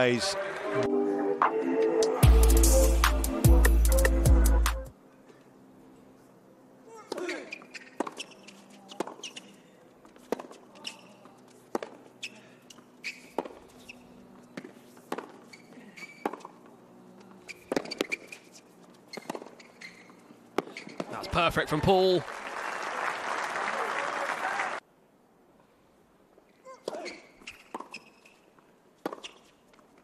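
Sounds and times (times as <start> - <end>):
tennis ball hit by rackets: 7.1 - 9.4, 10.2 - 11.0, 11.7 - 12.0, 13.1 - 13.7, 14.6 - 16.5, 17.5 - 18.4, 19.1 - 19.6, 20.6 - 21.1, 29.0 - 29.5
tennis ball bouncing: 7.1 - 9.5, 10.1 - 11.0, 11.6 - 18.5, 19.1 - 21.1, 26.8 - 28.3, 29.0 - 29.5.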